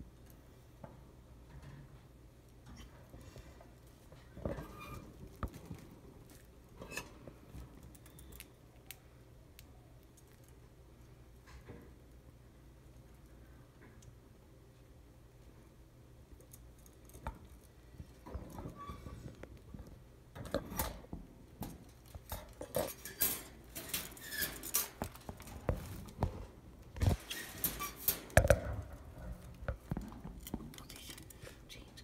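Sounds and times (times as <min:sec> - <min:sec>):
birds tapping toys and cage: 0:16.4 - 0:31.3.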